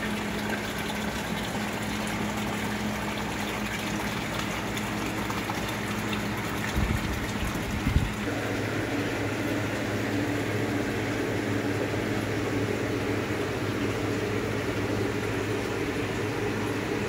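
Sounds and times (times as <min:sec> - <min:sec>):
aquarium air pumps humming: 0:00.0 - 0:17.0.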